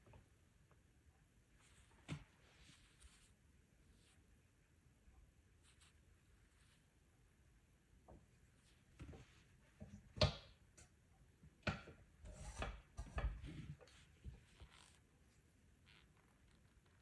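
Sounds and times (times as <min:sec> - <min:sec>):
rustling: 0:01.6 - 0:04.4.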